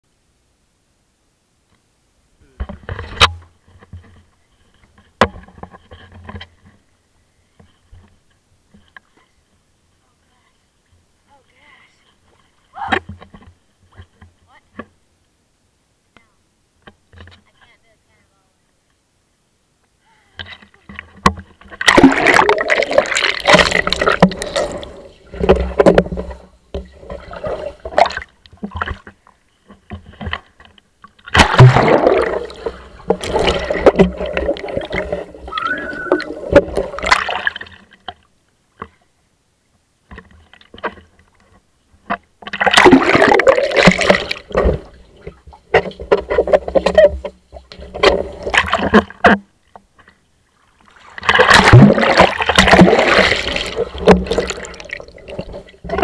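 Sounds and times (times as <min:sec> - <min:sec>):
water splashing and bubbling: 0:20.9 - 0:29.2, 0:31.2 - 0:38.2, 0:42.5 - 0:49.3, 0:50.5 - 0:56.0.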